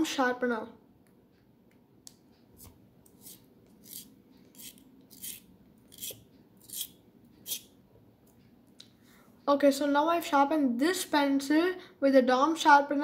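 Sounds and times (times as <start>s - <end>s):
pencil sharpener scraping wood: 2.6s - 7.7s.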